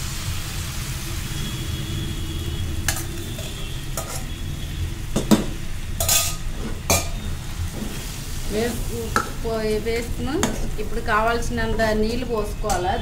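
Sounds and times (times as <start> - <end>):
pan sizzling: 0.0 - 13.0
steel spoon scraping pan: 2.9 - 4.4, 6.0 - 8.2.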